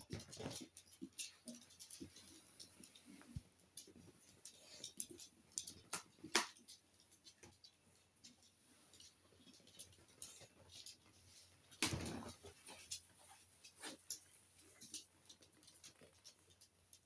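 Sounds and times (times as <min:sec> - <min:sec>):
dog claws clicking on wooden floor: 0:00.0 - 0:11.1.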